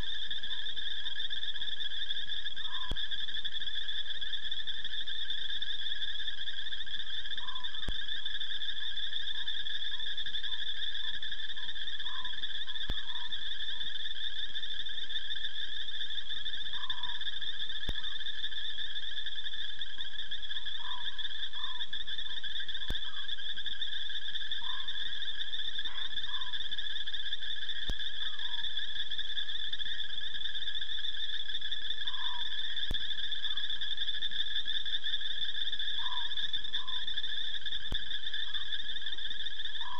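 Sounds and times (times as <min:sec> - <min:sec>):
shrill frog and insect trill: 0:00.0 - 0:39.9
low chirping calls: 0:16.7 - 0:17.2, 0:20.6 - 0:23.3, 0:24.6 - 0:25.1, 0:25.8 - 0:26.6, 0:27.8 - 0:28.7, 0:32.0 - 0:33.7, 0:36.0 - 0:37.1.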